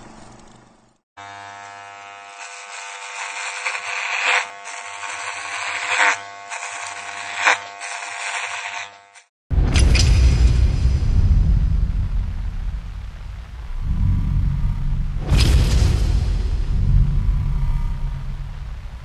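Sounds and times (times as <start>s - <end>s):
electric hair clippers buzzing: 1.2s - 9.3s.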